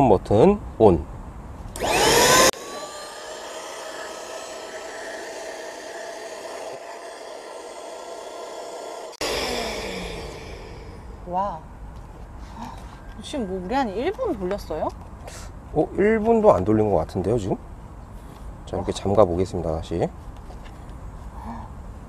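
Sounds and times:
electric air pump whirring: 1.8 - 11.5.

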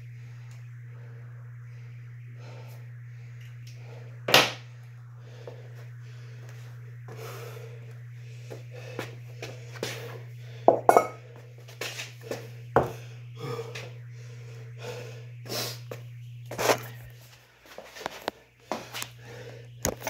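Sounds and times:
steady low hum: 0.0 - 20.0
breathy puffs: 12.2 - 15.9.

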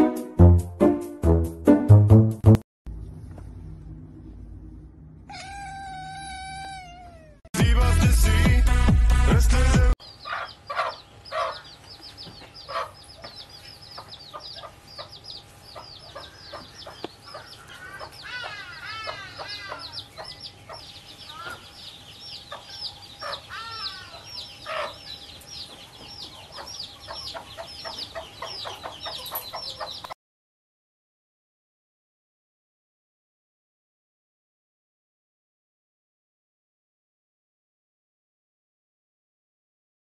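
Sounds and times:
chicks peeping: 10.0 - 30.2.

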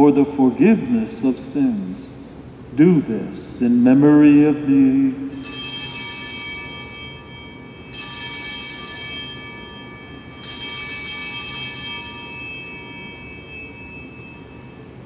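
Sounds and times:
altar bells ringing: 5.2 - 15.0.

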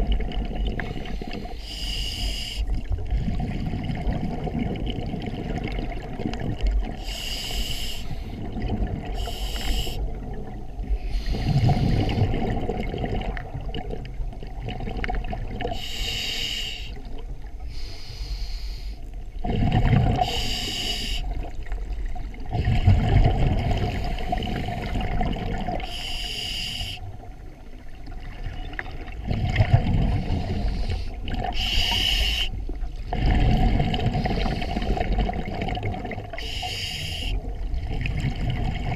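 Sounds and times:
regulator hissing inhale: 0.9 - 2.7, 7.0 - 8.4, 9.2 - 10.0, 10.9 - 12.2, 15.8 - 17.0, 17.7 - 19.2, 20.2 - 21.4, 25.8 - 27.1, 30.1 - 32.6, 34.1 - 35.0, 36.4 - 37.4.

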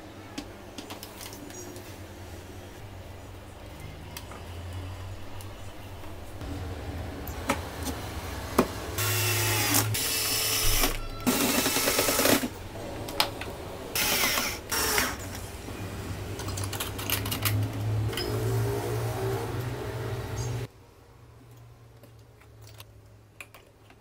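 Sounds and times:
cordless drill driving screws: 9.0 - 12.5, 14.0 - 15.2.

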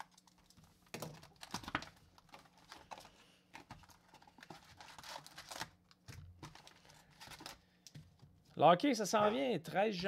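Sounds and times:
foil packs rustling: 0.9 - 7.7.

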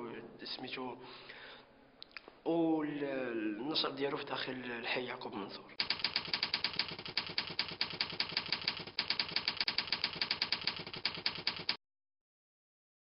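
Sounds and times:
typewriter key clicks: 5.8 - 11.8.

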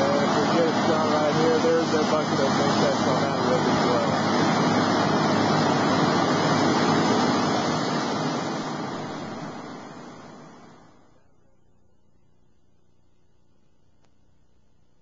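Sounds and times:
drill rig machinery running: 0.0 - 11.0.

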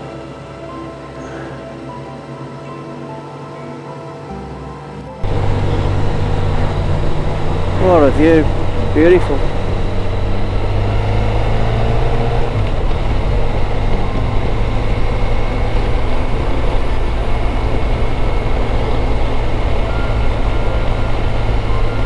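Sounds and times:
motorcycle engine running: 5.2 - 22.0
wind and road rush: 5.2 - 22.0.

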